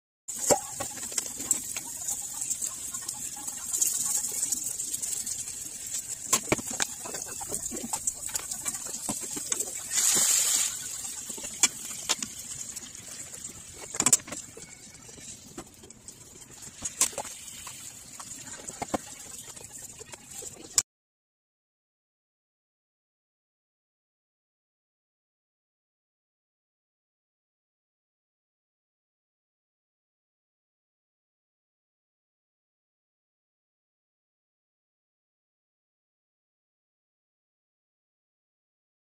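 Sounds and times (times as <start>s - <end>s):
meat sizzling in a frying pan: 0.3s - 15.3s.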